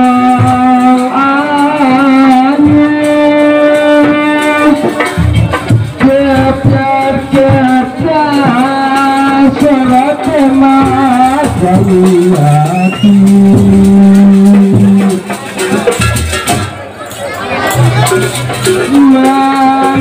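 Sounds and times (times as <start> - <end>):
wavering gamelan melody: 7.4 - 20.0.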